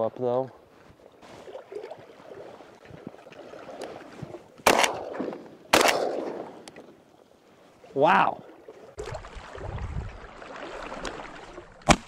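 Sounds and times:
shotgun shots: 4.6 - 6.6.

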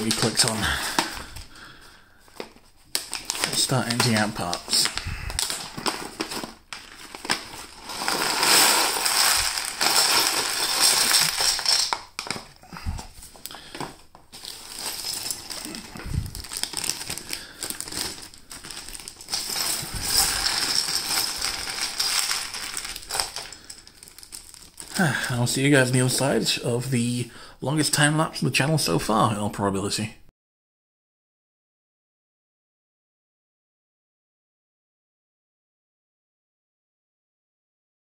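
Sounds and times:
plastic bags crinkling: 0.0 - 26.6
plastic pieces rattling: 3.0 - 12.6, 13.4 - 25.0.

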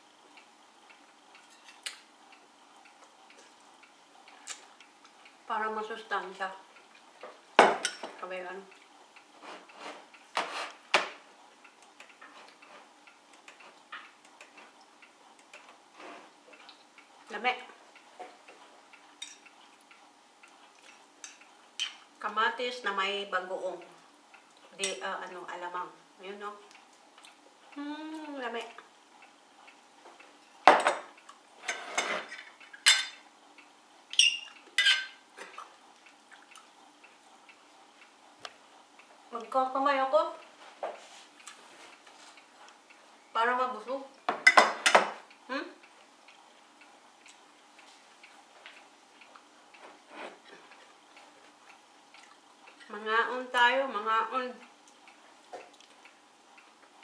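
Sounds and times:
spoon clinking on ceramic dishes: 32.9 - 33.2, 34.2 - 35.2.

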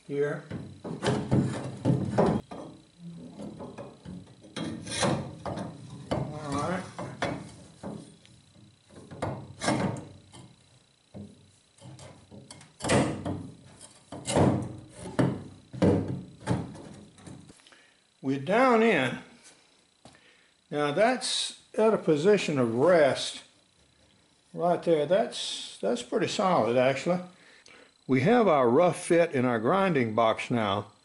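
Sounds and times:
metal pipes clunking and scraping: 3.4 - 8.2.

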